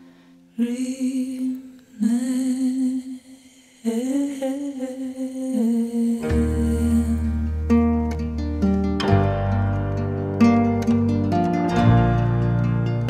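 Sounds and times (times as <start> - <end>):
person humming: 3.9 - 7.8
plucked acoustic guitar: 6.2 - 13.0
deep bass note: 6.3 - 13.0.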